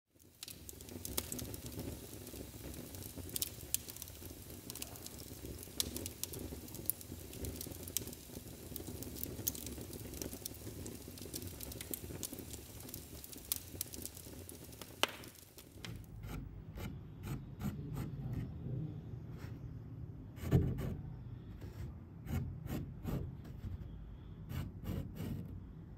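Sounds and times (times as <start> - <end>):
wood fire crackling: 0.1 - 16.9
charcoal scratching on canvas: 16.1 - 18.5, 21.7 - 25.5.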